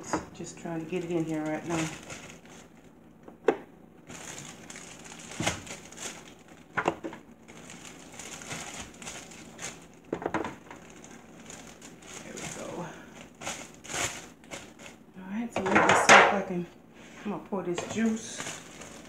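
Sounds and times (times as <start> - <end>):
plastic bag crinkling: 0.4 - 3.0, 4.0 - 15.1, 17.7 - 19.0.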